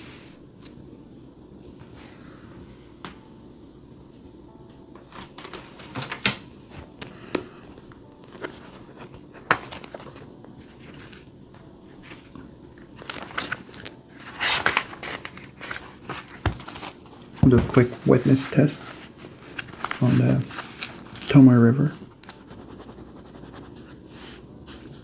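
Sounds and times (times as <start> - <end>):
paper pages rustling: 5.1 - 11.3, 11.9 - 25.0.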